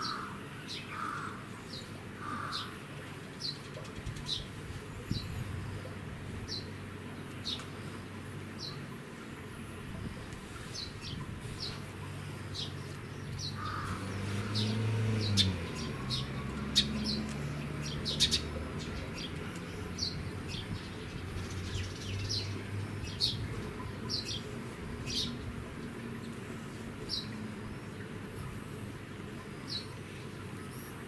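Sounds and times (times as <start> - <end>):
small birds chirping: 0.0 - 9.0, 10.1 - 31.0.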